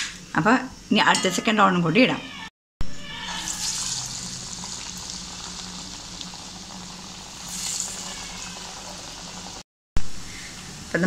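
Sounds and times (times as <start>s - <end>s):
batter deep-frying in hot oil: 3.0s - 11.0s.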